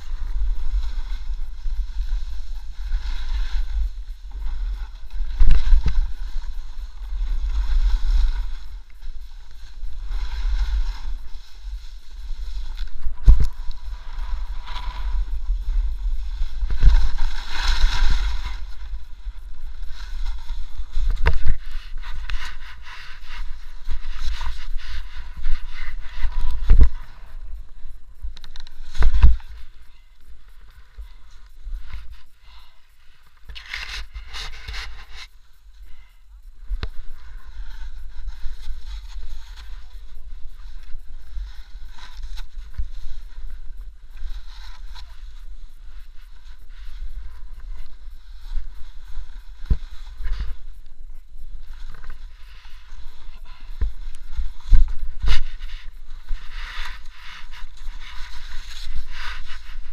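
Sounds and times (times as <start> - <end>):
snowboard scraping over snow: 0.0 - 27.4.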